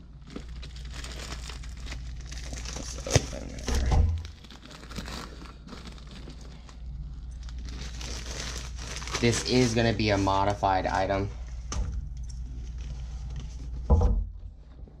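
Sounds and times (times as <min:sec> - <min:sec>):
plastic bag crinkling: 0:00.0 - 0:11.3
plastic bag tearing open: 0:00.2 - 0:11.0
low thump: 0:13.8 - 0:14.4.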